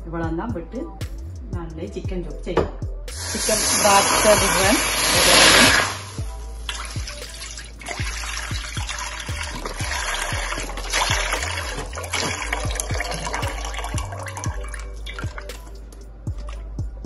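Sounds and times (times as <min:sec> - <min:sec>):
background music with a beat: 0:00.0 - 0:03.5, 0:04.4 - 0:17.0
broth pouring into a wok: 0:03.1 - 0:11.7.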